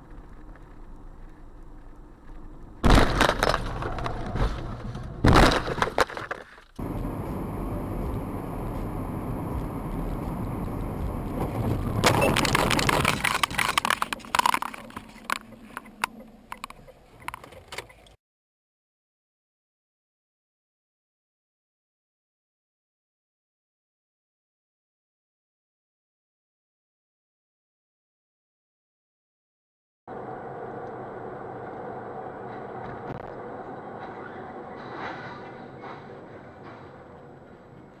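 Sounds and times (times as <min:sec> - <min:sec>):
road noise of moving car: 0:00.0 - 0:18.2, 0:30.1 - 0:38.0
car crash impact: 0:02.8 - 0:06.3
glass cracking and crunching: 0:11.9 - 0:15.5.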